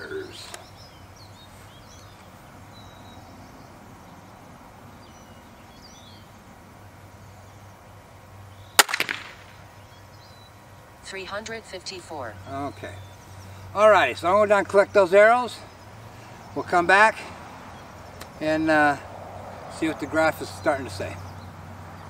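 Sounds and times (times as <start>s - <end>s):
crossbow shot crack: 8.8s - 9.6s.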